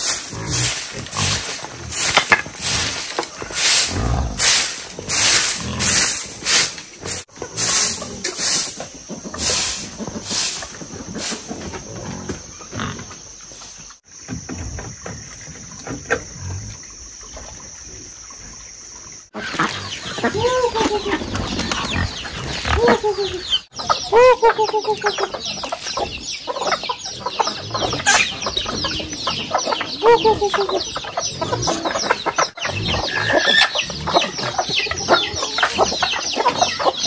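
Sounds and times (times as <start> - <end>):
twig broom sweeping dirt: 0.0 - 11.6.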